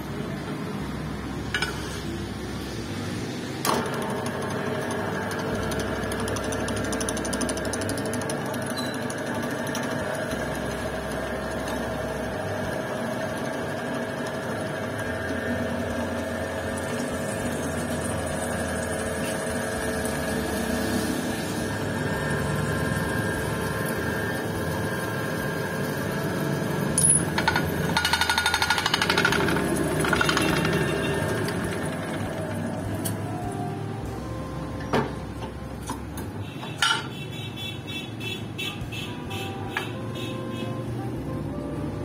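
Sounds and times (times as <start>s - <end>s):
spindle motor whine: 3.6s - 36.4s.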